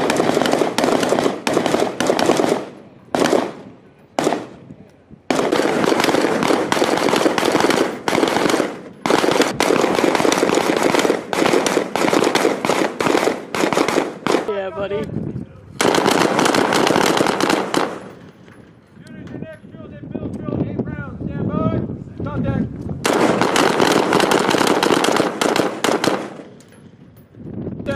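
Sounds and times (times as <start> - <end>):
rapid rifle fire: 0.0 - 3.6, 4.2 - 4.6, 5.3 - 14.6, 15.8 - 18.1, 23.0 - 26.6.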